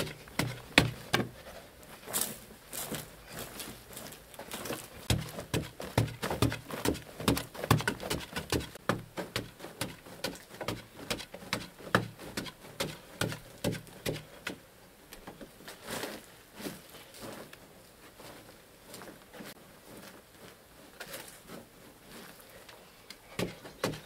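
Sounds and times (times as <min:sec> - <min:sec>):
digging tool chopping earth: 0:00.0 - 0:01.4, 0:05.0 - 0:14.6, 0:23.4 - 0:24.0
hands scraping loose soil: 0:00.0 - 0:14.6.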